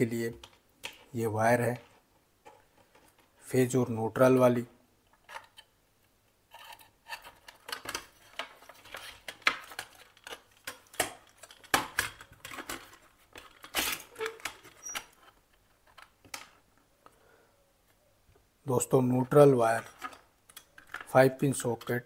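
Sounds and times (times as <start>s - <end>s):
wire rustling against plastic: 6.5s - 16.8s, 19.6s - 21.9s.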